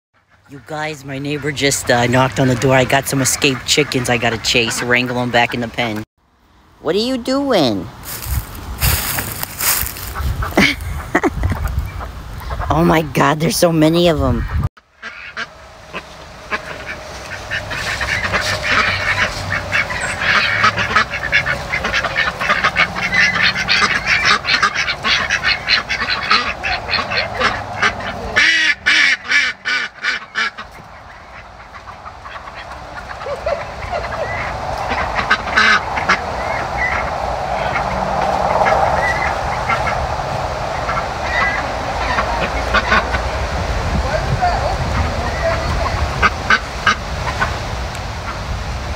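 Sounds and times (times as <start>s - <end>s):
poultry calling: 8.0s - 11.0s, 14.4s - 40.1s.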